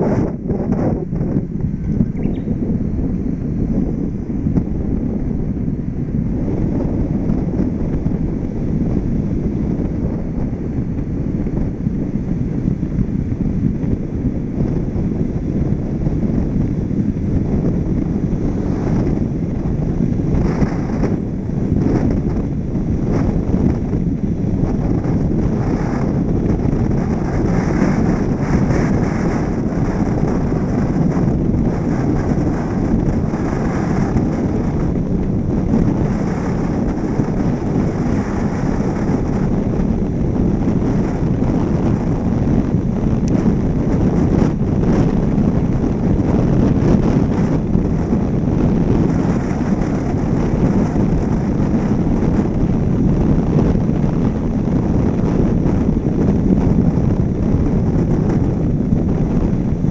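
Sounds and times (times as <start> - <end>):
car tyre and road noise: 0.0 - 59.9
wind rushing over microphone: 0.0 - 59.9.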